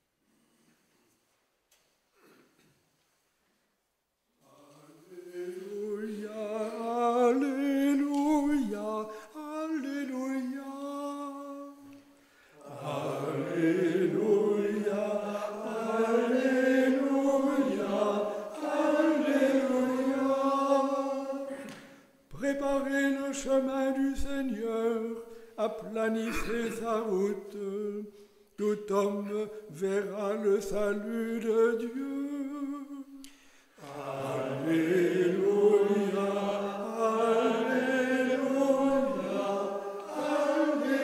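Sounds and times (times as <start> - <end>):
men's choir chanting: 12.6 - 21.9, 33.8 - 41.0.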